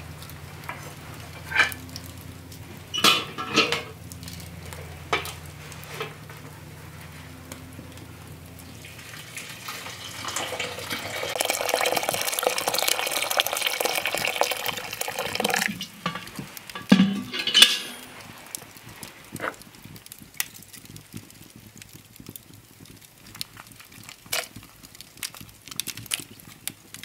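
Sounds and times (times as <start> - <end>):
water pouring into pot: 8.6 - 27.0.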